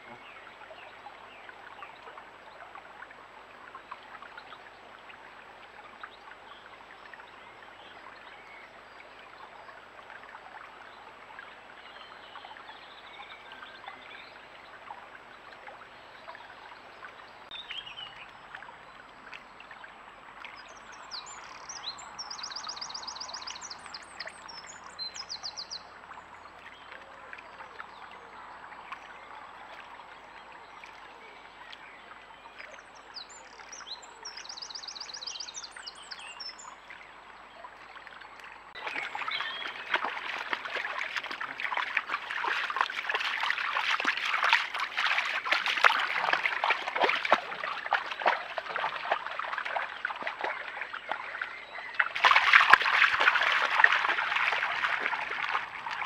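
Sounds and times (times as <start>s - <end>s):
stream trickling: 0.0s - 56.0s
songbird singing trills: 20.6s - 25.9s, 33.0s - 36.9s, 38.8s - 56.0s
loud splashing water: 38.8s - 56.0s.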